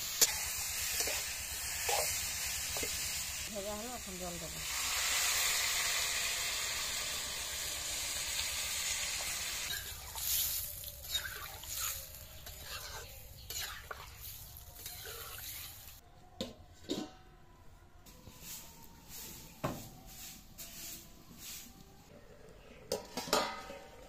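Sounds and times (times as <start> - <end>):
water sizzling in hot pan: 0.0 - 16.0
metal spatula scraping pan: 11.0 - 14.0.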